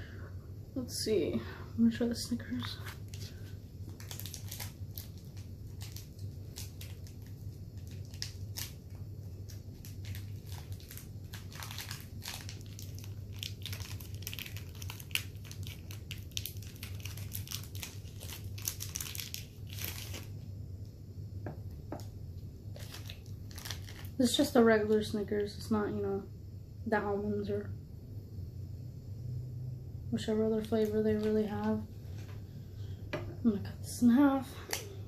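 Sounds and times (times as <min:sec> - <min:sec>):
steady low hum: 0:00.0 - 0:35.0
plastic wrapper crinkling: 0:02.2 - 0:20.4, 0:21.9 - 0:25.1.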